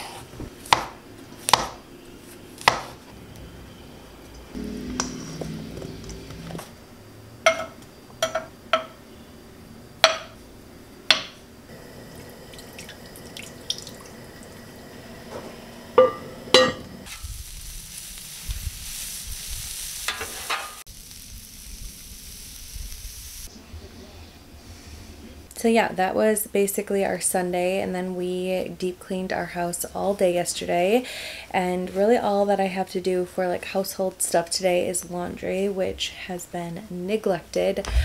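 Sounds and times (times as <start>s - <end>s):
cookware knocking and clattering: 7.5s - 9.0s, 10.0s - 10.4s, 16.0s - 17.0s
dumplings sizzling in a frying pan: 17.0s - 23.5s.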